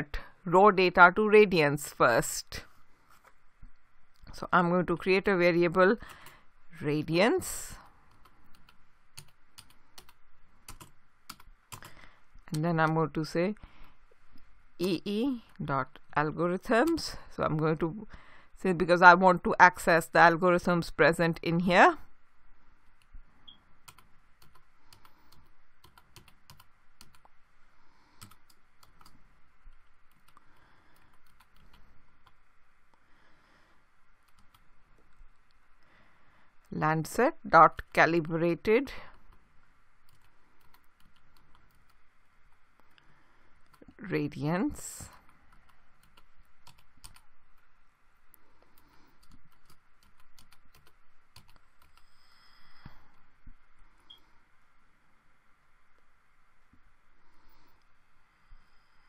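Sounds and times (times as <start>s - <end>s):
typing on computer keyboard: 8.2s - 13.0s, 23.9s - 27.3s, 28.2s - 29.2s, 45.3s - 47.3s, 48.8s - 52.1s.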